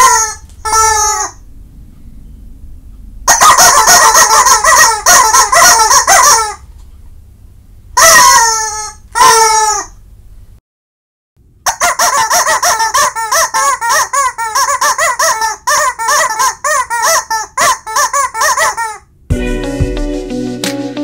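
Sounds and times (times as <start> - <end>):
squeaky dog toy squawking: 0.0 - 1.4, 3.3 - 6.6, 8.0 - 10.0, 11.6 - 19.1.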